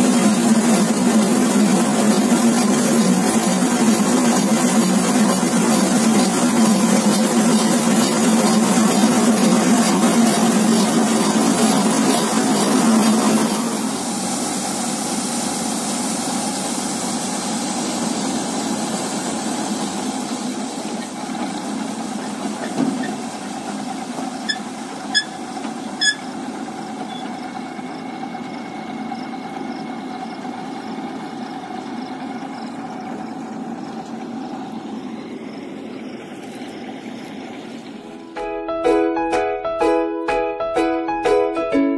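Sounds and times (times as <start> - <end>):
grain pouring through auger: 0.0 - 28.4
diesel engine running: 0.0 - 38.5.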